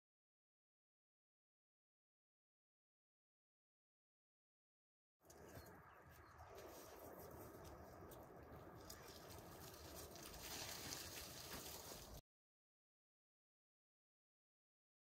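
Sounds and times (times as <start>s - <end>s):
footsteps on snow and soil: 6.3s - 12.2s.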